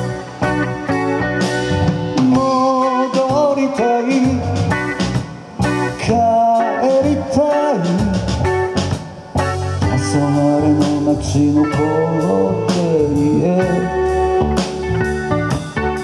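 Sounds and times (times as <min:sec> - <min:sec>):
lead guitar bending notes: 0:00.0 - 0:16.0
live blues rock band: 0:00.0 - 0:16.0.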